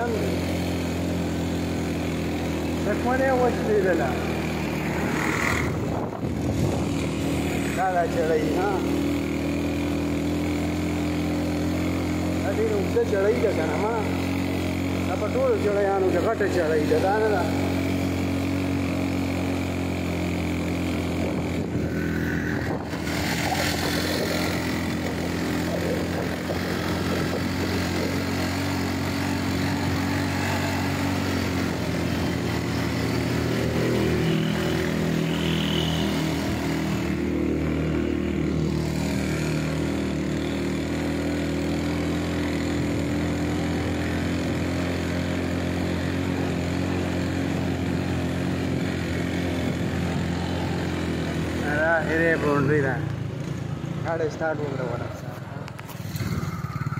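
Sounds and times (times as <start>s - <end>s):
motorcycle engine running: 0.0s - 56.9s
wind and road rushing: 4.2s - 8.0s, 20.0s - 34.2s.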